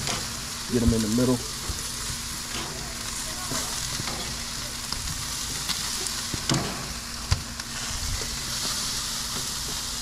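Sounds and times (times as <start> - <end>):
meat sizzling on a grill: 0.0 - 10.0
clicks and knocks on grill: 5.6 - 7.4.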